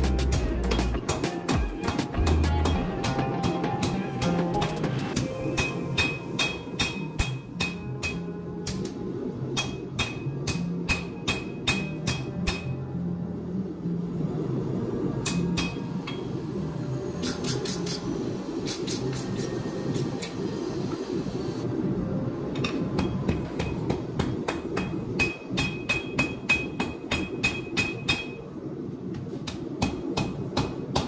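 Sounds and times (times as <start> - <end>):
hammer ringing on anvil: 5.4 - 8.3.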